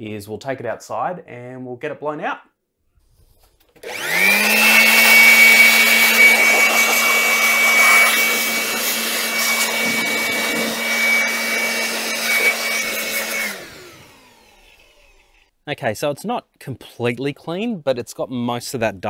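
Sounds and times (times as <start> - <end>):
electric blower whining: 3.8 - 15.5.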